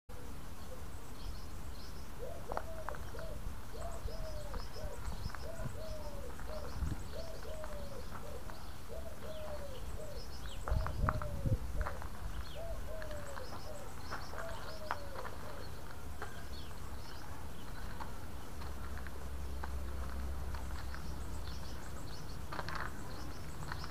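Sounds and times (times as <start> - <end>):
small birds chirping: 0.1 - 23.9
dove cooing: 2.2 - 15.8.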